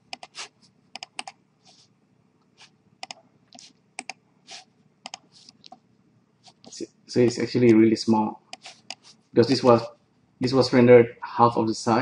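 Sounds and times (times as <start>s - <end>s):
computer mouse buttons clicking: 1.0s - 1.4s, 3.0s - 4.2s, 5.0s - 5.8s
soft hissy noises: 1.6s - 2.8s, 4.4s - 5.8s, 6.4s - 12.0s.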